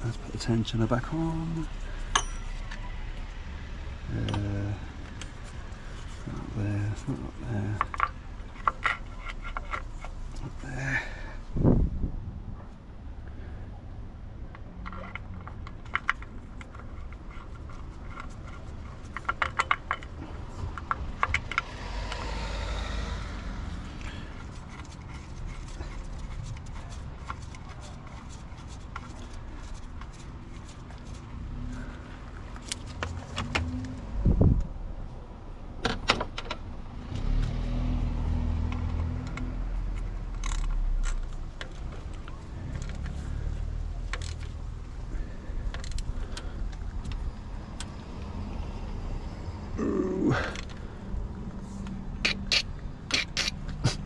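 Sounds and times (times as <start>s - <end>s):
metal tools clinking on engine: 2.0s - 2.9s, 4.1s - 4.7s.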